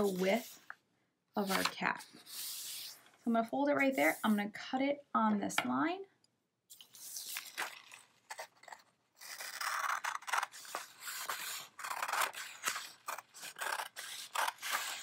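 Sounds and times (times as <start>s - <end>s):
scissors snipping paper: 6.9s - 15.0s.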